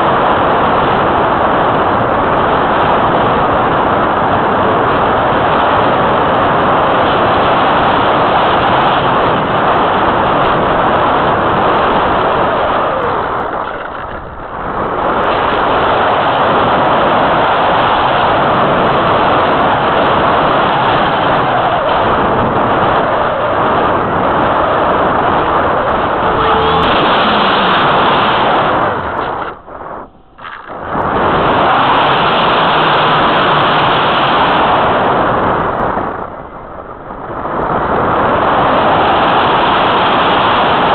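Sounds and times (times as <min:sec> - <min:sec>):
wind rushing over microphone: 0:00.0 - 0:40.9.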